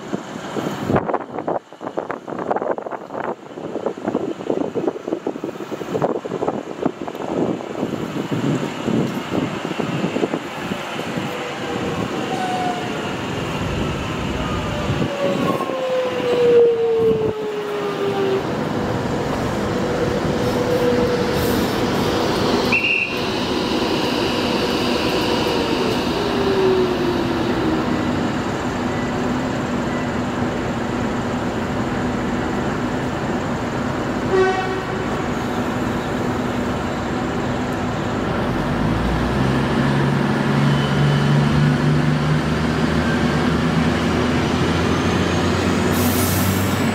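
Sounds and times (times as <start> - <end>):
wheels rumbling on rails: 0.0 - 46.9
train traction motors whining: 8.1 - 45.9
train horn toot: 34.3 - 35.3.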